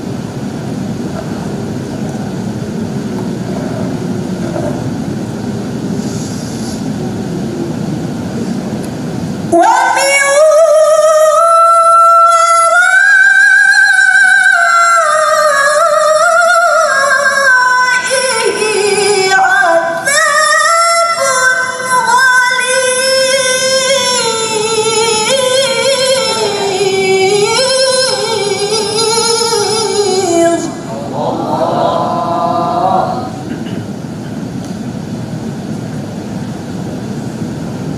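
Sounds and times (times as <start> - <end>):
woman reciting melodically: 9.5 - 33.4.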